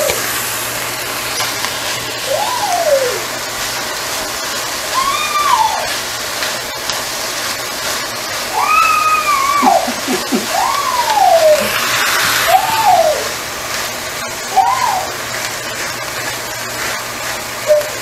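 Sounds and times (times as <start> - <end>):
spinach sizzling in oil: 0.0 - 18.0
young child crying out: 4.9 - 5.9, 8.5 - 11.8.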